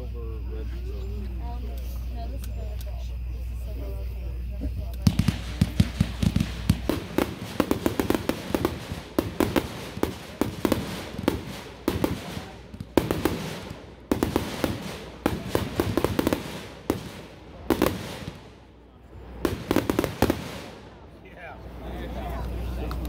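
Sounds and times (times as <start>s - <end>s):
fireworks launch thumps: 5.0s - 18.4s.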